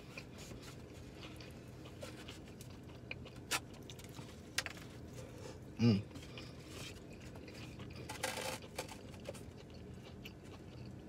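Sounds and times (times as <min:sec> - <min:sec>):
clicks and crackles of handling food: 0:00.0 - 0:05.3, 0:06.1 - 0:11.0.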